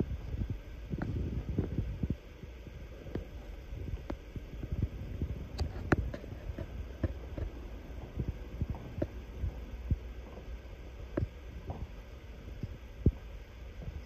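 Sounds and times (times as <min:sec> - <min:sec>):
steady low rumble: 0:00.0 - 0:14.0
footsteps: 0:05.6 - 0:12.4.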